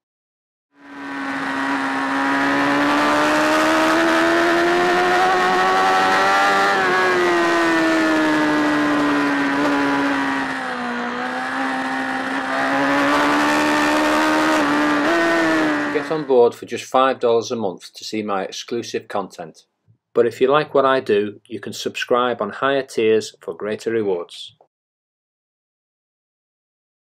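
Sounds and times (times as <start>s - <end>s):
motorcycle engine at high revs: 0.8s - 16.3s.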